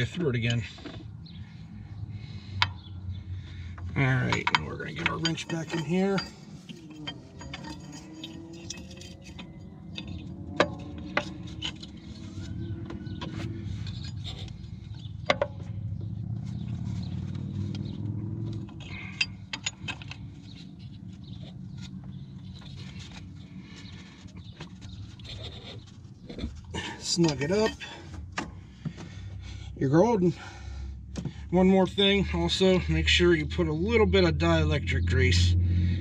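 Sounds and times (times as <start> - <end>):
sharp metallic clinks: 4.2 - 11.8
low rumble: 30.4 - 36.0.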